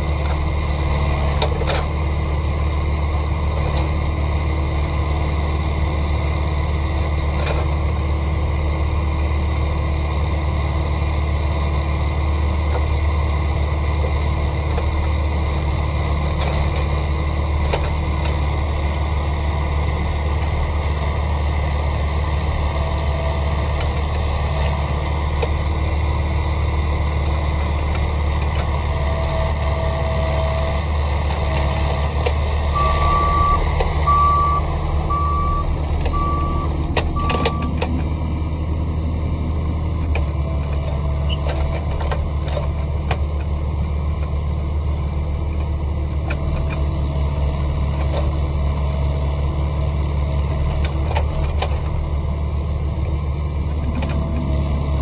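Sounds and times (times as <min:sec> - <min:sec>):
diesel engine running: 0:00.0 - 0:55.0
reversing alarm beeps: 0:32.7 - 0:37.8
short higher beeps: 0:32.7 - 0:37.8.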